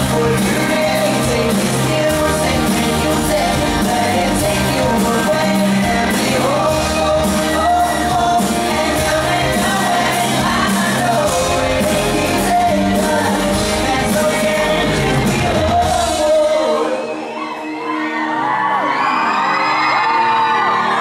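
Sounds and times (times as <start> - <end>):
bass guitar: 0.0 - 16.5
drums playing a steady beat: 0.0 - 16.6
man singing into a microphone: 0.0 - 17.4.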